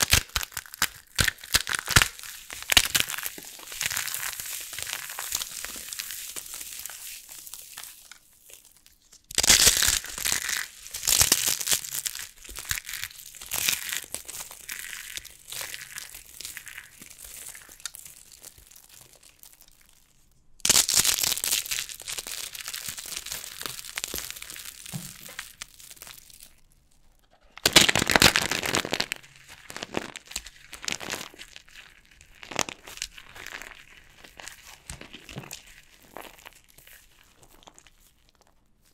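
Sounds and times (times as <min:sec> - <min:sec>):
soap crunching and crackling: 0:00.0 - 0:38.9.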